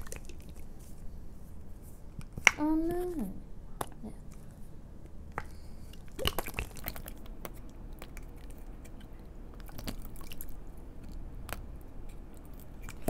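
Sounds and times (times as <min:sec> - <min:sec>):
slime squelching from bottle: 0:05.4 - 0:11.7.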